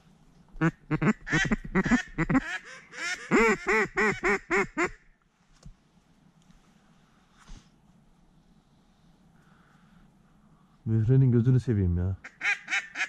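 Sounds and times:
duck quacking: 0.6 - 5.0.

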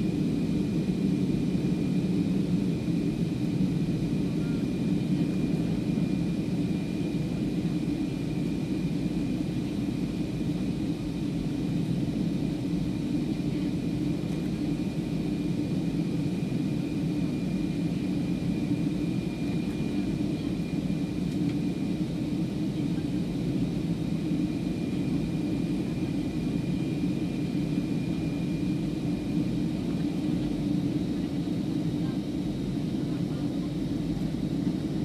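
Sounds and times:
jet engine and airflow rumble: 0.0 - 35.0.

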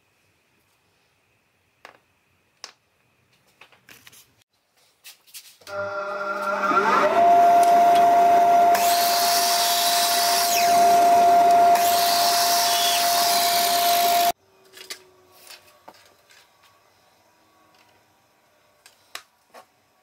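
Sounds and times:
mitre saw motor whining: 5.7 - 15.3
saw blade cutting wood: 6.3 - 14.4.

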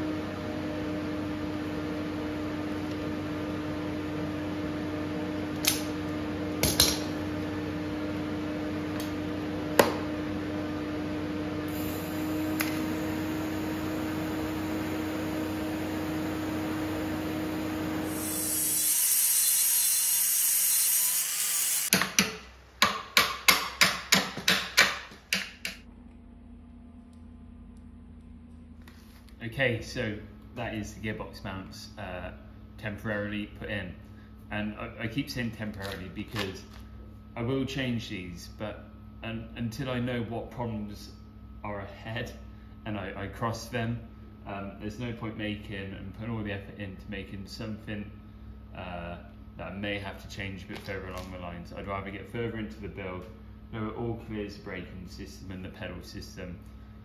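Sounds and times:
arc welding hum: 0.0 - 22.0.

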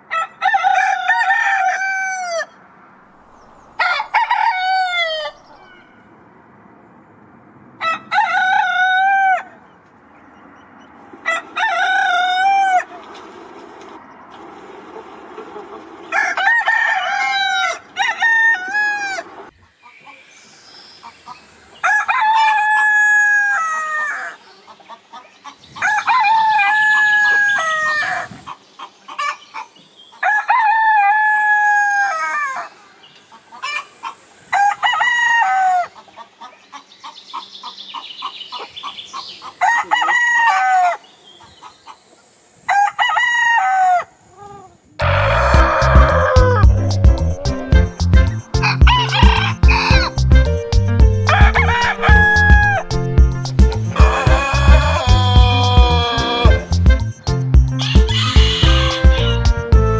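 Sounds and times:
roosters crowing: 0.0 - 2.6, 3.3 - 6.1, 7.8 - 9.7, 10.9 - 13.1, 14.4 - 19.5, 21.1 - 24.6, 25.5 - 28.6, 30.2 - 32.8, 33.6 - 36.0, 39.2 - 41.4, 42.6 - 56.8, 57.7 - 59.7.

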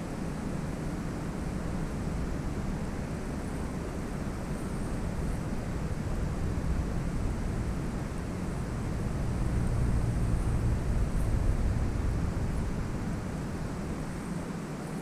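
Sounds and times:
flowing canal water: 0.0 - 15.0
wind buffeting microphone: 4.4 - 14.5.

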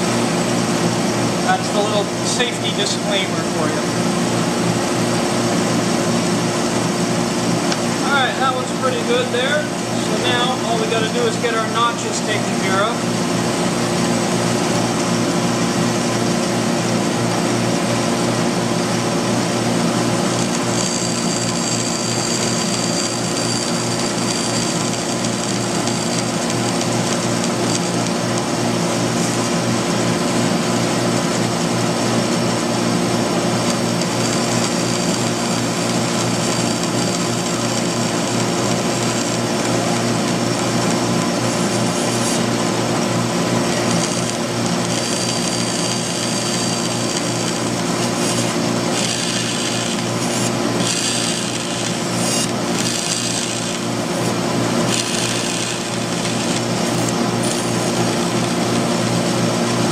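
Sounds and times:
bandsaw motor hum: 0.0 - 59.9
saw blade rasping through wood: 41.6 - 42.6, 43.8 - 58.4.

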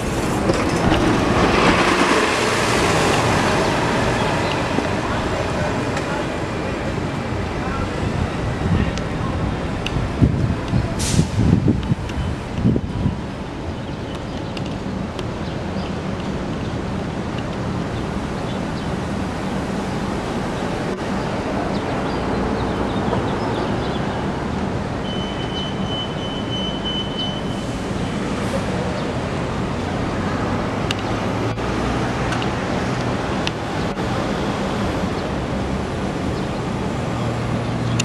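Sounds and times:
street traffic: 0.0 - 38.0
bus engine idling: 2.2 - 11.7.

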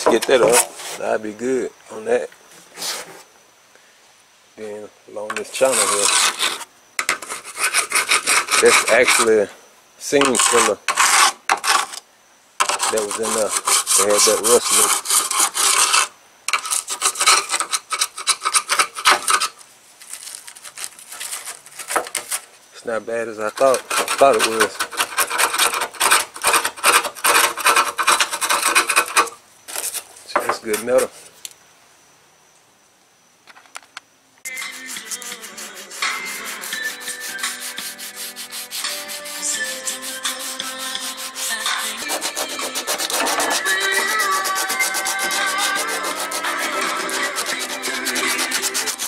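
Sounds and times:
hand scraping on metal: 0.0 - 1.1, 5.3 - 12.0, 12.6 - 19.6, 20.3 - 22.5, 23.4 - 31.3, 34.5 - 49.0
sanding car bodywork: 5.6 - 9.3, 12.7 - 16.1, 34.6 - 49.0
background music: 34.5 - 49.0.

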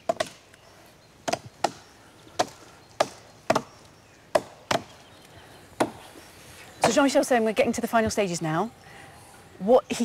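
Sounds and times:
axe chopping tree trunk: 0.0 - 0.4, 1.2 - 1.8, 2.4 - 3.7, 4.3 - 4.9, 5.8 - 6.0.

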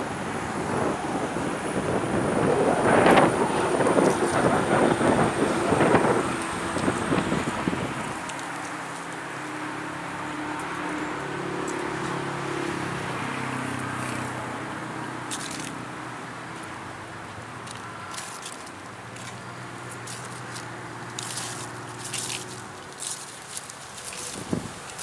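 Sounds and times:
wind buffeting microphone: 0.0 - 9.5, 23.8 - 25.0
low engine hum: 0.0 - 25.0
road traffic noise: 0.0 - 25.0.

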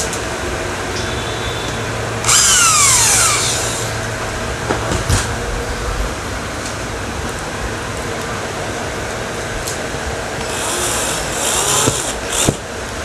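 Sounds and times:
electric drill whining: 2.2 - 4.1, 10.4 - 12.6.

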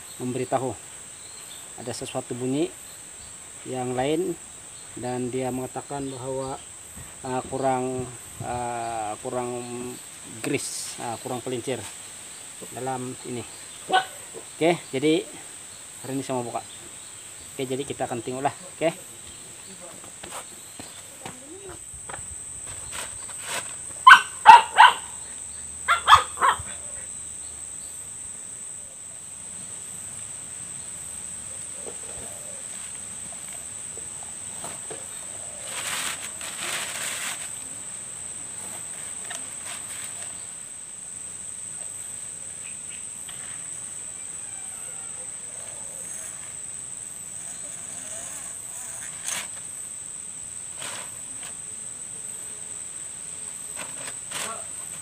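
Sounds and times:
high drone of insects: 0.0 - 55.0
dog barking: 24.0 - 25.2, 25.9 - 26.8.

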